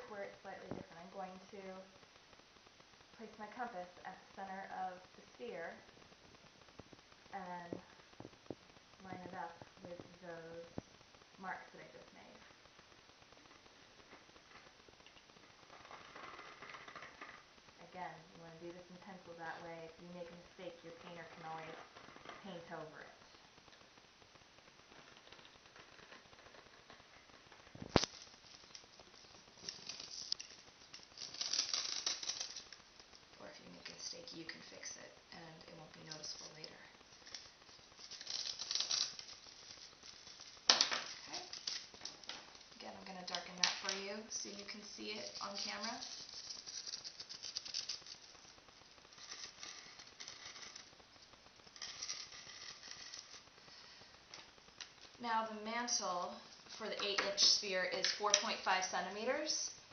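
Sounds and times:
pencil scratching on styrofoam: 49.2 - 50.9.

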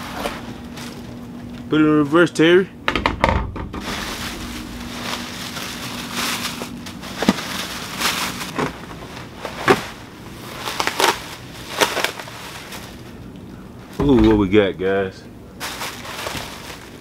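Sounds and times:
cardboard rustling: 0.0 - 1.7, 3.7 - 14.4, 15.6 - 17.0
plastic wrapping crinkling: 0.0 - 1.7, 3.7 - 14.1, 15.6 - 17.0.

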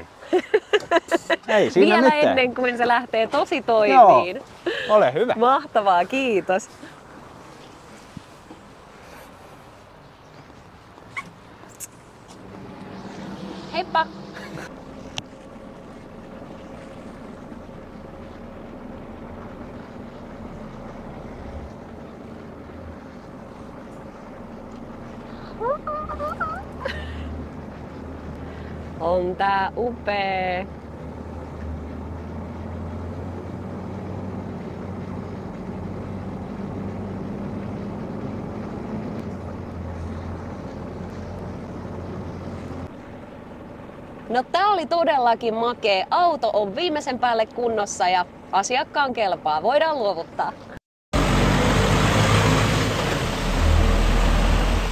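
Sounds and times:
diesel truck engine running: 11.0 - 50.5, 51.2 - 54.9.

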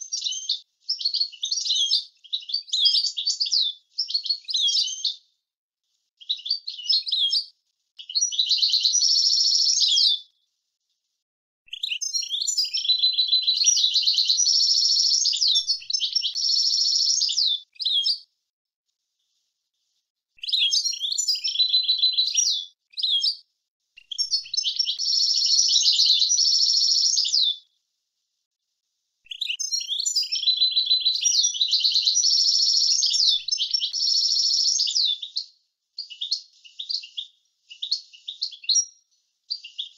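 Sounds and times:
goldfinch singing: 8.0 - 10.2, 11.7 - 18.2, 20.4 - 23.4, 24.0 - 27.5, 29.3 - 37.1.

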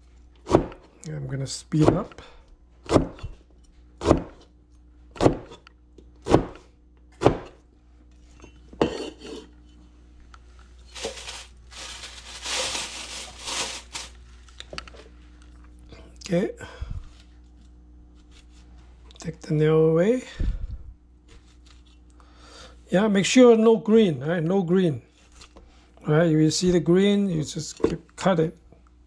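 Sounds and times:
cleaver chopping on plastic board: 0.4 - 0.9, 1.8 - 2.2, 2.8 - 3.3, 4.0 - 4.4, 5.2 - 5.6, 6.2 - 7.6
peel rustling and scraping: 10.4 - 15.1.

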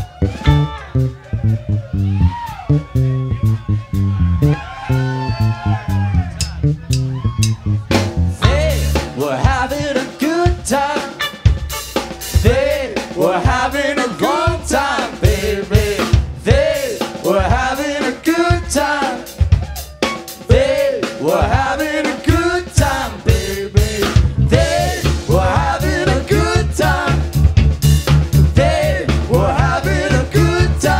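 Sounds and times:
swooping lead line: 0.0 - 9.4
bass: 0.0 - 30.9
drum kit: 0.0 - 30.9
electric guitars: 0.2 - 1.9.

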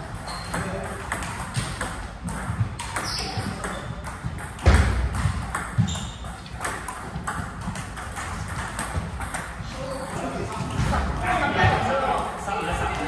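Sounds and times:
short high squeaks: 0.2 - 0.6, 3.0 - 3.9.

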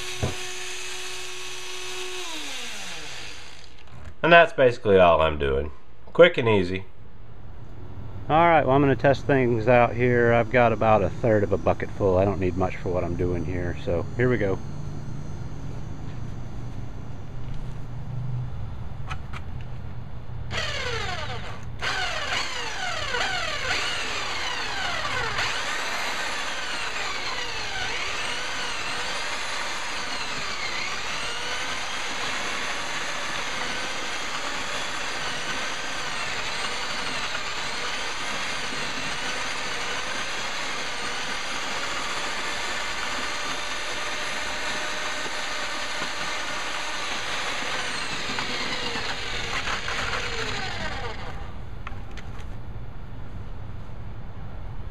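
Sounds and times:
electric mortar mixer whining: 0.0 - 4.1, 20.5 - 51.6.

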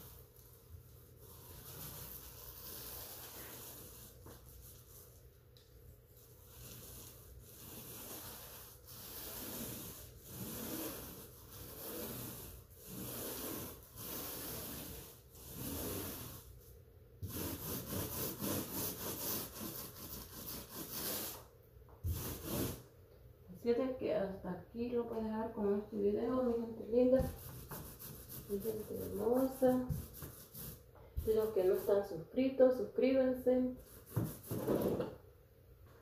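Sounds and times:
paint roller swishing on wall: 0.0 - 22.9, 26.3 - 32.2, 33.7 - 35.1.

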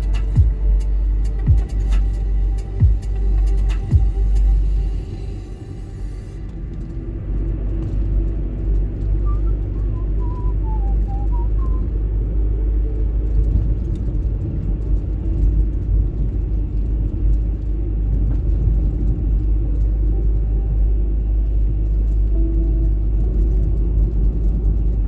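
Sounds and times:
car engine and road noise: 0.0 - 25.0.

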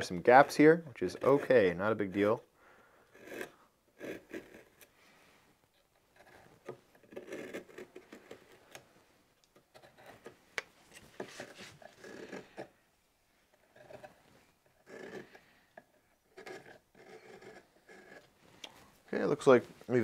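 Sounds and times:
gouge scraping wood: 0.2 - 1.7, 3.1 - 4.9, 6.0 - 8.8, 9.6 - 12.8, 13.6 - 18.4.

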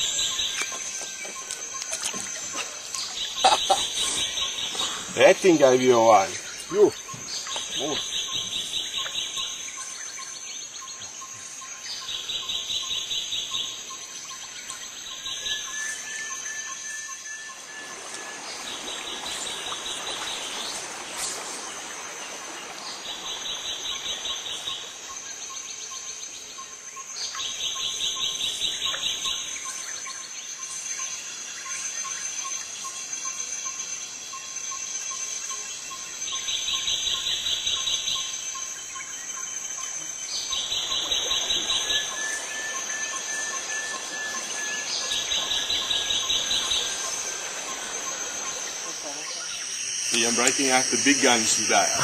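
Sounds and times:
insects trilling chirps: 0.0 - 52.0
steady high-pitched buzz: 37.0 - 52.0.

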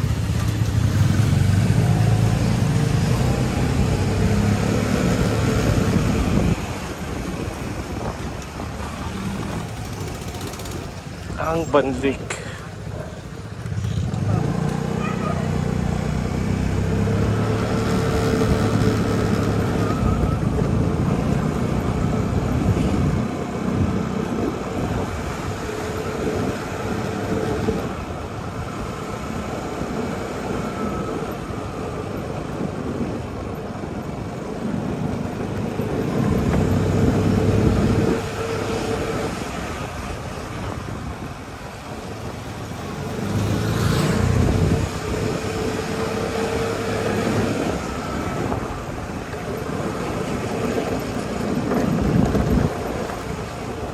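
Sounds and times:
wind rushing over microphone: 0.0 - 53.9
motorcycle engine running: 8.8 - 11.5.

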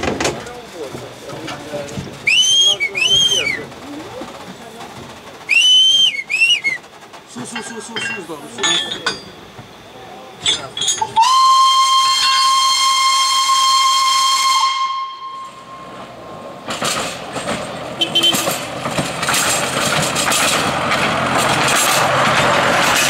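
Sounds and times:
steam hissing: 0.0 - 23.0
steam locomotive whistle: 2.3 - 3.6, 5.5 - 6.8, 11.0 - 15.9, 18.0 - 18.5.

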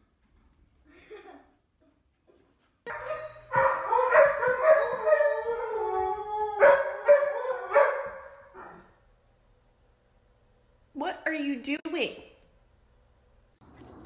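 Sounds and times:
dog howling: 2.9 - 9.0.

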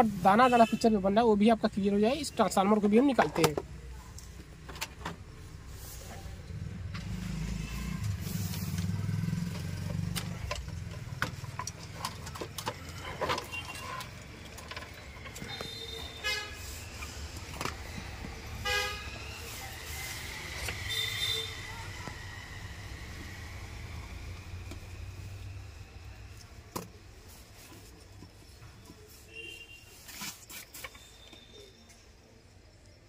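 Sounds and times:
passing vehicle rumble: 5.5 - 13.2, 16.7 - 26.3
vehicle horn toots: 15.5 - 16.7, 18.6 - 19.1, 20.9 - 21.7.

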